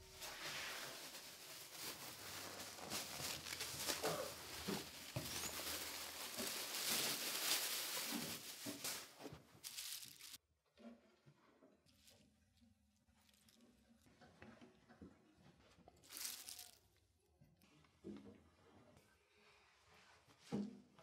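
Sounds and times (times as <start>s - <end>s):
plastic bag crinkling: 0.1s - 10.4s, 16.1s - 16.8s.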